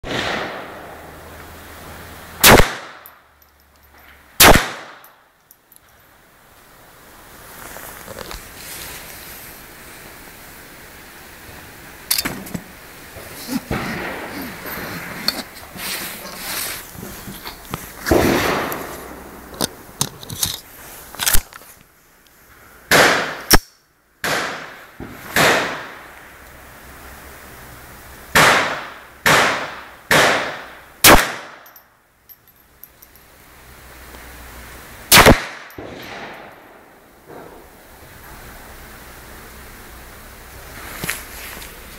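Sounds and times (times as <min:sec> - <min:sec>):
pistol shots: 0:00.0 - 0:01.0, 0:02.4 - 0:03.1, 0:04.4 - 0:05.1, 0:22.9 - 0:23.6, 0:24.2 - 0:24.8, 0:25.4 - 0:26.0, 0:28.4 - 0:31.6, 0:35.1 - 0:36.8
loud cracks: 0:00.0 - 0:01.2, 0:02.4 - 0:03.1, 0:04.4 - 0:05.1, 0:18.0 - 0:19.2, 0:22.9 - 0:26.1, 0:28.4 - 0:31.6, 0:35.1 - 0:37.6
rustling: 0:07.3 - 0:10.2, 0:11.5 - 0:22.6, 0:40.6 - 0:41.9
pistol metallic clicks: 0:23.4 - 0:23.8.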